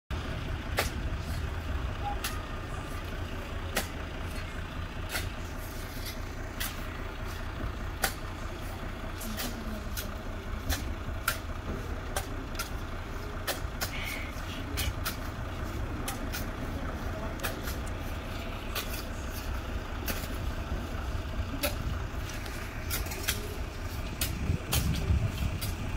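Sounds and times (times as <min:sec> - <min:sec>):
low rumble: 0:00.1 - 0:25.9
shovels scraping sand on metal: 0:03.7 - 0:11.4, 0:13.4 - 0:20.5.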